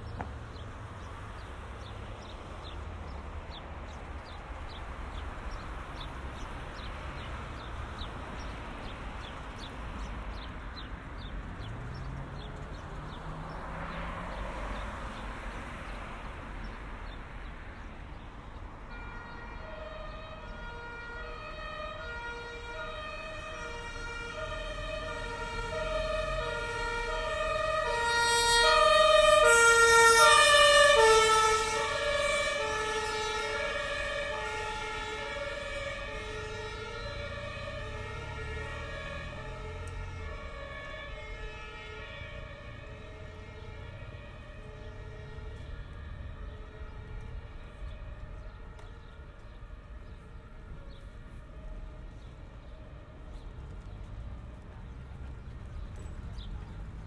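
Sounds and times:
street traffic: 0.0 - 57.0
two-tone emergency siren: 18.8 - 57.0.

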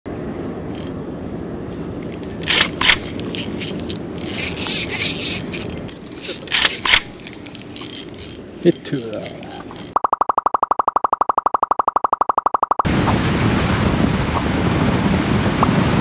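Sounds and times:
sharp clicks: 2.2 - 8.4, 9.2 - 12.9
fishing reel gear whirring: 2.4 - 12.8.

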